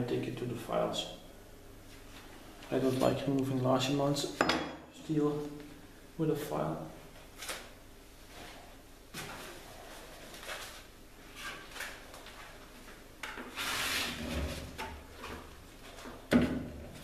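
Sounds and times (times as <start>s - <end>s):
belt rubbing and scraping: 13.5s - 14.7s.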